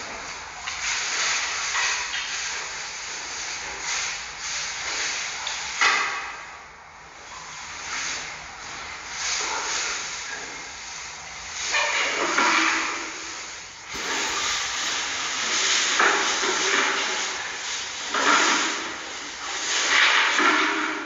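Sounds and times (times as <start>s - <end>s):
loud rough hiss: 13.0s - 20.5s.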